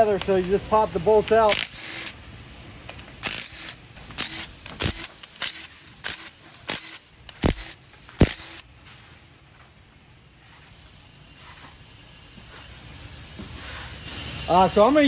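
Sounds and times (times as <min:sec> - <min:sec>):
sharp metallic clicks: 0:01.2 - 0:02.2, 0:02.8 - 0:08.7.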